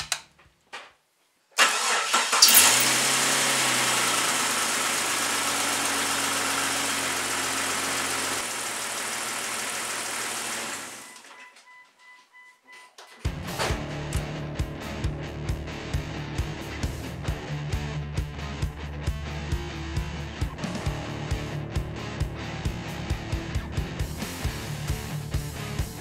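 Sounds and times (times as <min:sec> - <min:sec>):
car engine starting and idling: 0:01.6 - 0:11.3, 0:13.3 - 0:17.6, 0:20.3 - 0:26.0.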